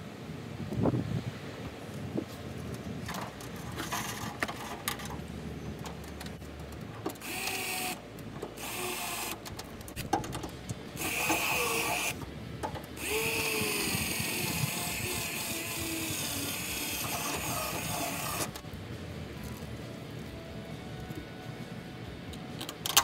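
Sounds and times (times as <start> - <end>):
handling clicks and knocks: 2.6 - 8.6, 9.3 - 11.4, 12.2 - 13.0, 22.3 - 23.0
drill motor whining: 7.2 - 8.0, 8.6 - 9.4, 10.9 - 12.2, 13.0 - 18.6.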